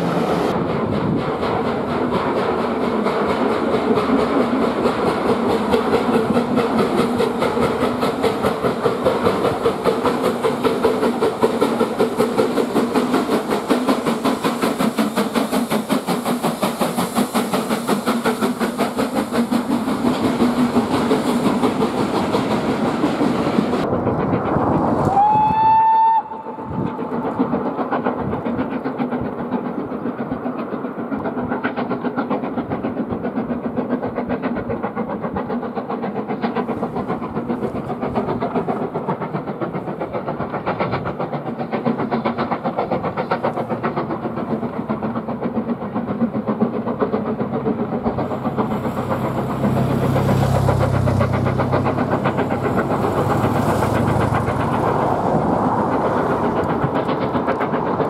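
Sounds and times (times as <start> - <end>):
distant steam train chuffing: 0.0 - 58.0
steam locomotive chuffing: 0.0 - 58.0
steam whistle blast: 25.1 - 26.7.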